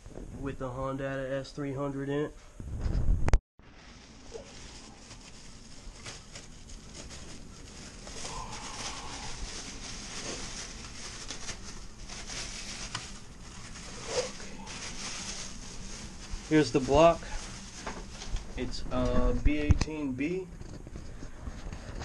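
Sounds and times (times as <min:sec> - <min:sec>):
plastic bag crinkling: 0:03.6 - 0:20.4.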